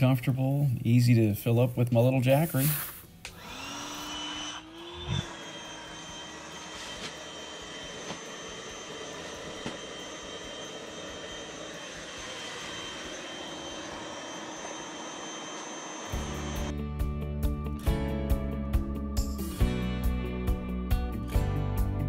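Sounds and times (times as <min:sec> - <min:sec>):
electric air pump whining: 0:02.0 - 0:16.8.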